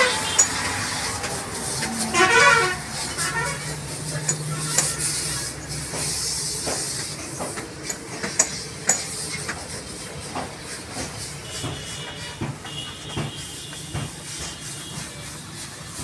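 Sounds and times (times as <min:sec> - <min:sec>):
high-pressure water jet hissing: 0:00.0 - 0:16.0
sharp knocks: 0:10.4 - 0:14.6.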